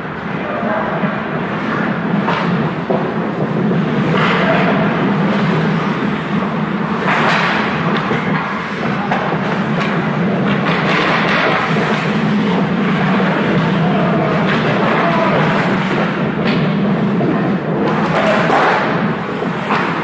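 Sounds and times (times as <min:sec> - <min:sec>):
skates scraping on ice: 0:01.5 - 0:20.0.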